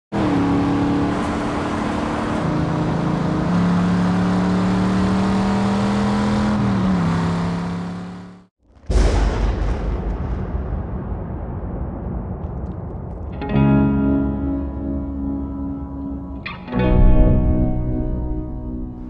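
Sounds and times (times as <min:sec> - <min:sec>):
car engine running: 0:00.1 - 0:08.5.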